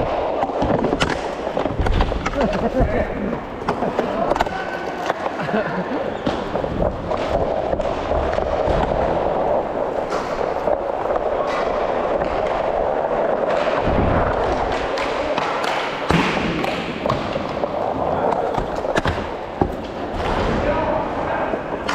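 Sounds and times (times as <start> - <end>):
skate wheels rolling on plastic tiles: 0.0 - 20.3
hockey sticks clacking: 0.0 - 21.9
low thud: 13.8 - 14.7.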